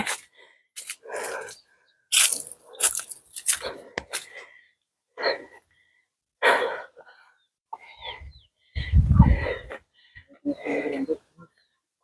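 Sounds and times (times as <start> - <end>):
person breathing hard: 0.2 - 1.7, 3.4 - 11.2.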